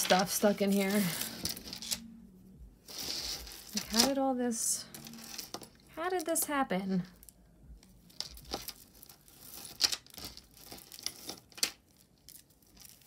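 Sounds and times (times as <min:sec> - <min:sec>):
necklace beads clicking: 0:07.2 - 0:13.0.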